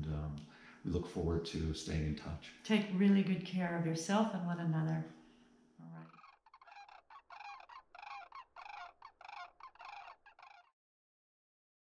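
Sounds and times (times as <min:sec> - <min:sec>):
cranes calling: 0:05.9 - 0:10.7.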